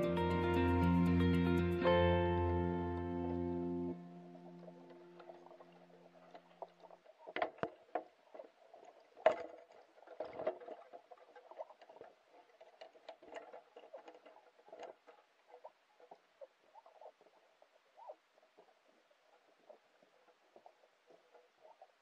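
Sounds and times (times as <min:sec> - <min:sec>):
faint murmur of water: 0:02.8 - 0:22.0
underwater clicks and pops: 0:04.6 - 0:12.1.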